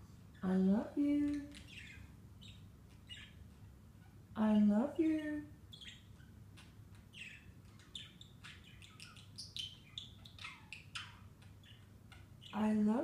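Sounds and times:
budgerigar chirping: 1.5s - 4.2s, 5.7s - 12.6s.

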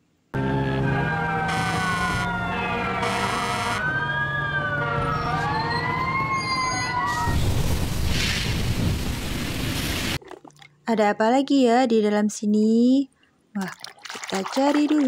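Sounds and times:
fire truck sirens wailing: 0.3s - 7.6s.

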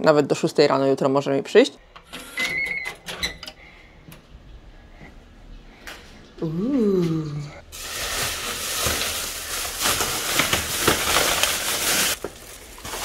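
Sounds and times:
plastic bags rustling: 7.6s - 13.0s.

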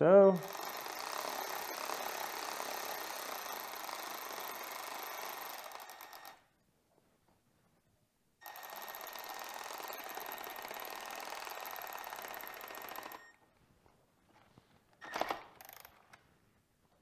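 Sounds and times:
electric ratchet running: 0.4s - 6.4s, 8.4s - 13.2s.

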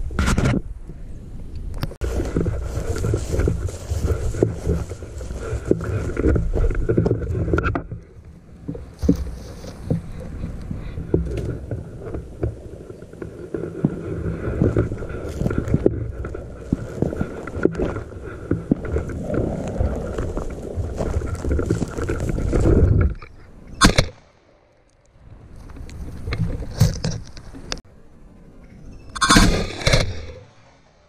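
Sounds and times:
wind rumble on microphone: 0.0s - 23.9s
dry brush cracking and rustling: 1.8s - 7.5s, 8.7s - 23.2s.

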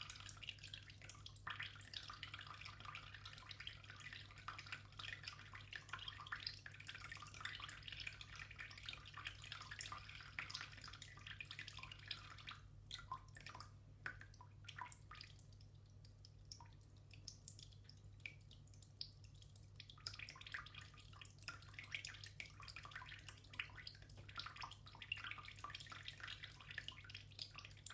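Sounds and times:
water drips: 0.0s - 27.9s
water trickling into bath: 0.0s - 27.9s.

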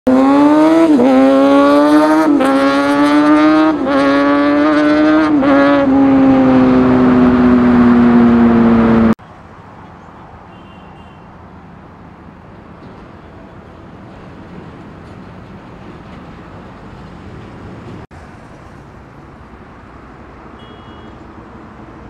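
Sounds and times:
road traffic noise: 0.0s - 22.0s
motorcycle engine accelerating: 0.1s - 9.2s.

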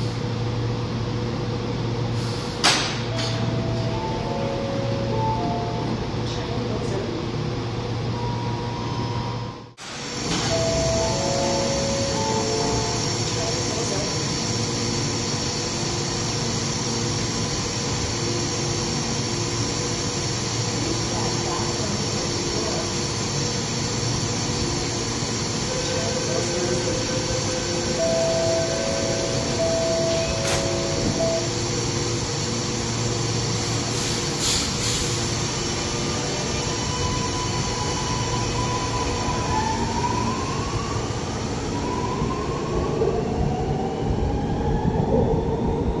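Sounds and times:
metro train running hum: 0.0s - 46.0s
door-closing warning beeps: 28.0s - 31.5s.

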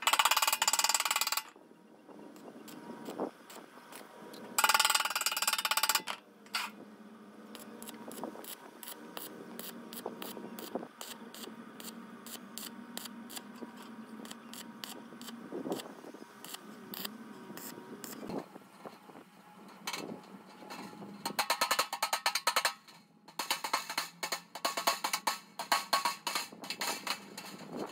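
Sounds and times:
grinder disc ticking and scraping: 4.6s - 6.7s, 19.7s - 27.9s.

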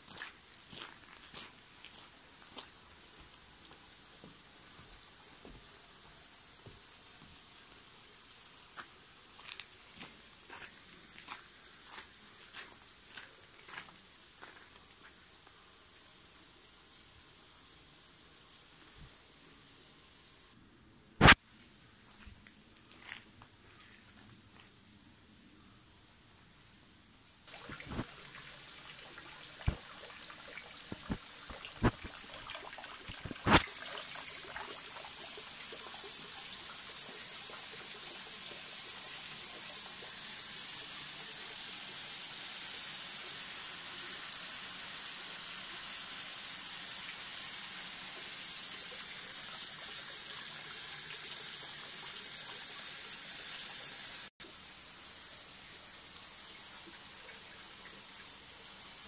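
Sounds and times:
water trickling into basin: 27.5s - 36.6s.

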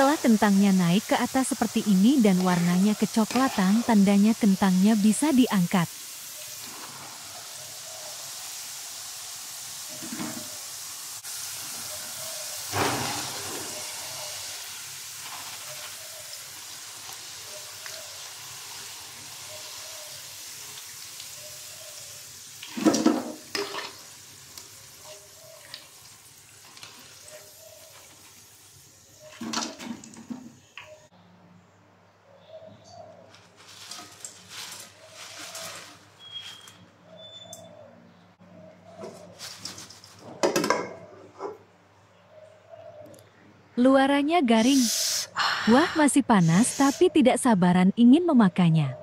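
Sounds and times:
fries sizzling in oil: 0.0s - 31.0s, 33.4s - 36.8s, 44.4s - 47.4s.

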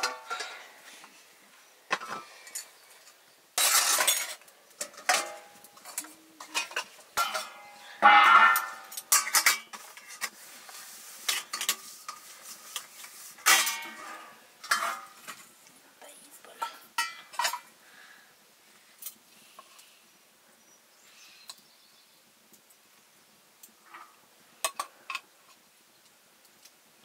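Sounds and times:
dishes clinking and clattering: 0.0s - 0.7s, 3.6s - 10.2s, 13.4s - 15.4s, 16.6s - 17.7s.

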